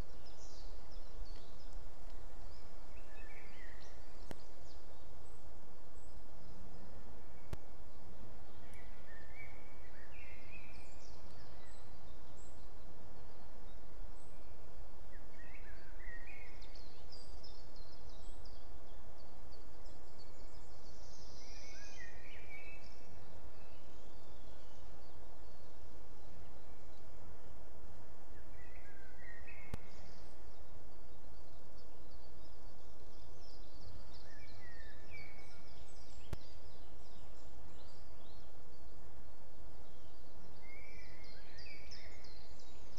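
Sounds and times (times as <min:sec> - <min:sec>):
songbird chirping: 0:00.0 - 0:42.9
faint clicks: 0:01.3 - 0:02.2, 0:04.2 - 0:04.5.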